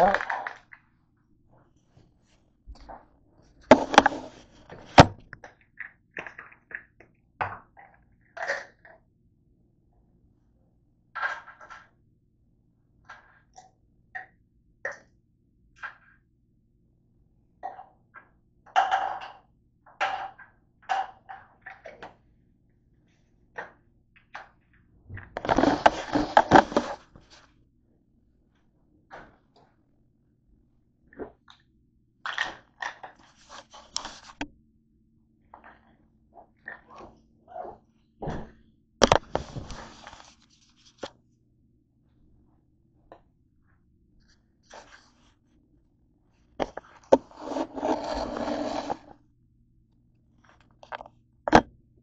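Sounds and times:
camera handling clatter: 3.7 - 5.3.

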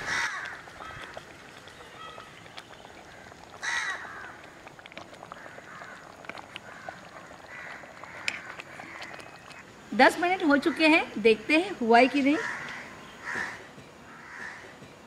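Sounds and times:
crow cawing: 0.0 - 1.1, 3.6 - 4.4, 5.4 - 9.2, 12.4 - 14.7.

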